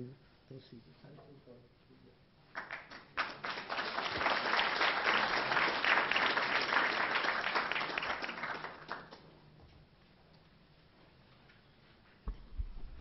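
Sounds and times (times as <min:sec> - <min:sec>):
audience applauding: 0:02.5 - 0:09.3.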